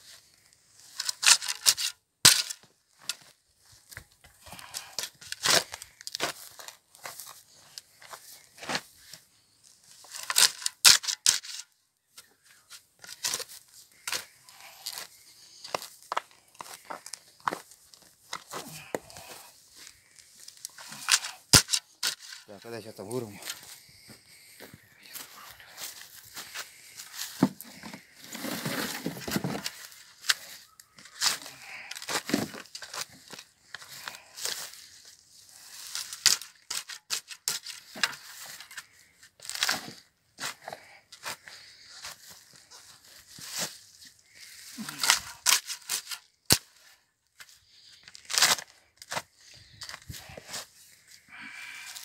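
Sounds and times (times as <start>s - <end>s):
clods crunching and roots tearing: 0.4s - 11.8s, 12.5s - 52.0s
spade knocking and scraping soil: 0.9s - 3.3s, 3.9s - 7.3s, 10.0s - 17.6s, 20.4s - 23.7s, 26.4s - 34.8s, 35.8s - 41.4s, 44.8s - 47.5s
spade digging into rooty soil: 20.6s - 23.6s, 35.6s - 38.7s, 44.4s - 46.8s.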